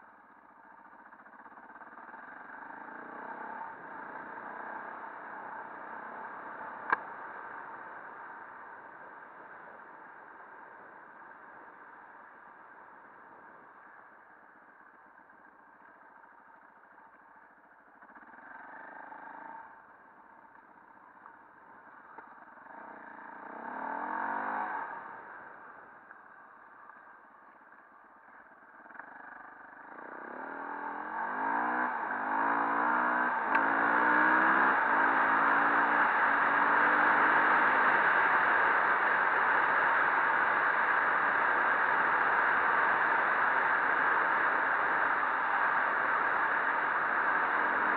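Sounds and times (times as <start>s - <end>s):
motorcycle engine revving: 0.8s - 9.8s, 18.0s - 26.3s, 27.5s - 47.9s.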